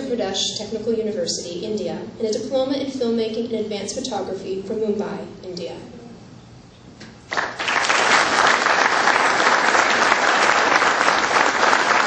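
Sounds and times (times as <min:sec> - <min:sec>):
audience applauding: 0:07.3 - 0:12.0.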